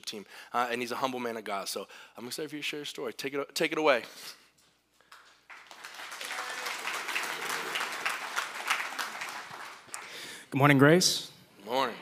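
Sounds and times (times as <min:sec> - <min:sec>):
congregation applauding: 0:05.1 - 0:10.5.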